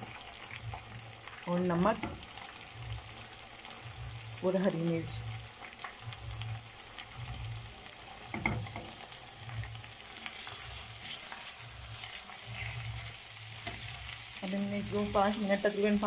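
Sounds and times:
masala sizzling in hot oil: 0.0 - 16.0
spatula stirring in wok: 5.3 - 16.0.

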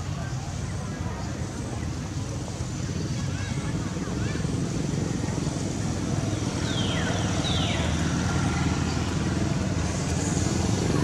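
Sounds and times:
engine running: 4.4 - 11.0.

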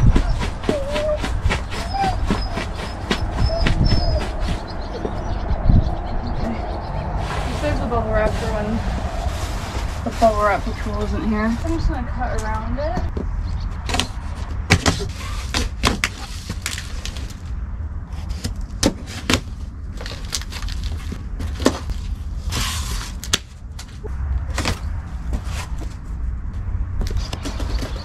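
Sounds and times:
cardboard box clicking and cracking: 13.8 - 17.4, 18.4 - 22.0
cardboard tearing: 14.7 - 17.4.

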